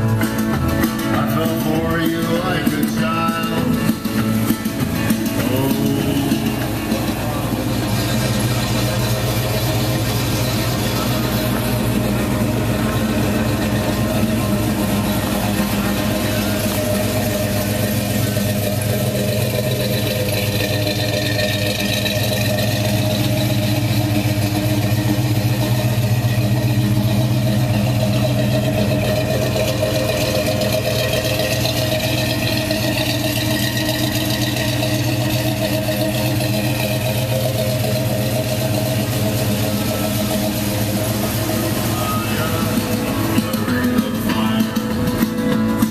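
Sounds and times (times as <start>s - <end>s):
pickup engine idling: 0.0s - 45.9s.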